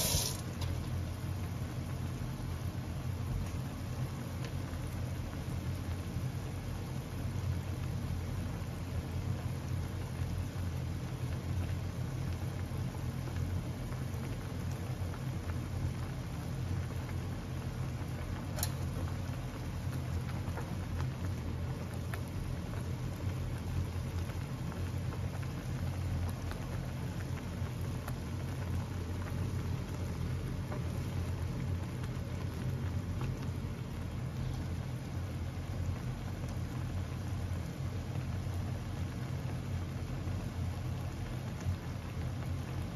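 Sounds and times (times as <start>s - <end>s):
broth bubbling in a pot: 0.0s - 42.9s.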